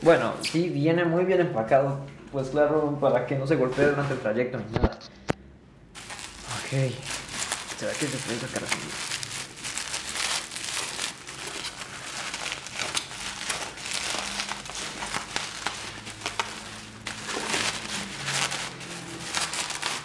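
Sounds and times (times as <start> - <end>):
bubble wrap crinkling: 6.0 - 20.0.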